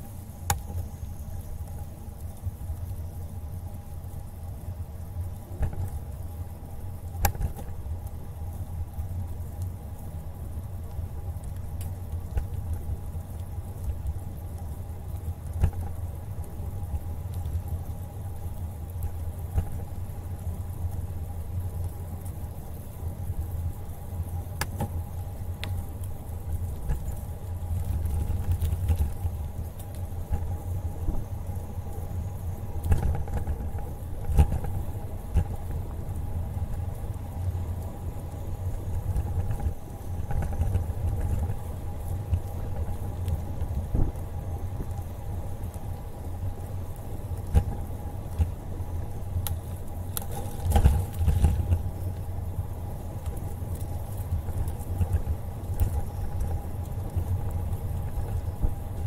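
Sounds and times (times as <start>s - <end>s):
bicycle tyres rolling on pavement: 0.0s - 59.0s
wind rumble on microphone: 0.0s - 59.0s
wind buffeting microphone: 26.4s - 49.2s.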